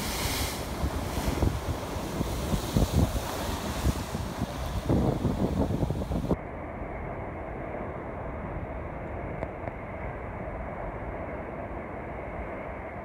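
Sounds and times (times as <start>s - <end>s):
surf washing over rocks: 0.0s - 6.4s
wind buffeting microphone: 0.0s - 6.4s.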